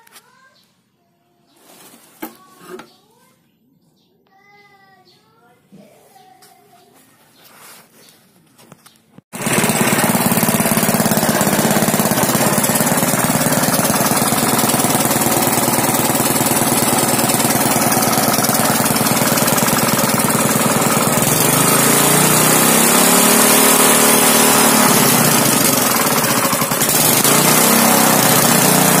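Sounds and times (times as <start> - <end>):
water pump engine running: 9.4 - 29.0.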